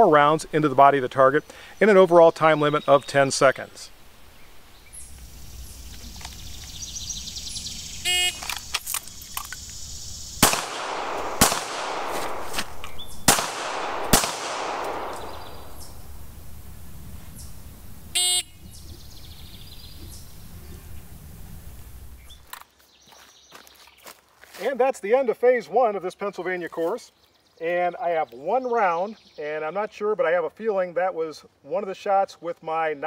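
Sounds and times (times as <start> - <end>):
pistol shots: 10.4 - 16.1.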